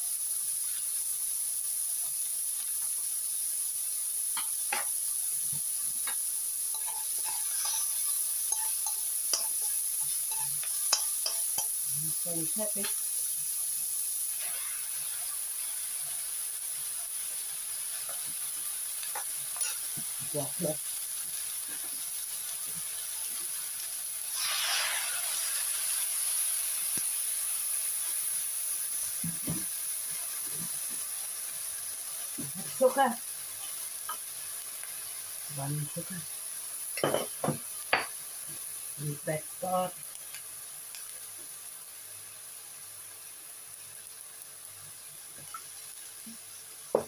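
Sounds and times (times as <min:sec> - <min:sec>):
food sizzling in a wok: 0:00.0 - 0:47.0
spatula scraping a pan: 0:06.0 - 0:11.8, 0:19.1 - 0:20.0, 0:24.3 - 0:25.6.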